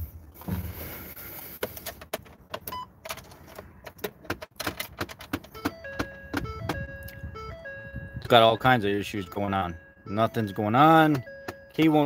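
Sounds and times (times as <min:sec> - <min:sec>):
electronic tones: 0:05.6 - 0:12.0.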